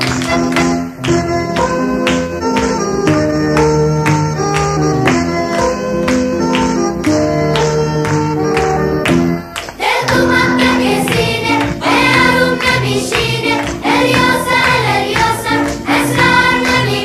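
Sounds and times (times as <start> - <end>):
voices singing: 9.6 - 17.0.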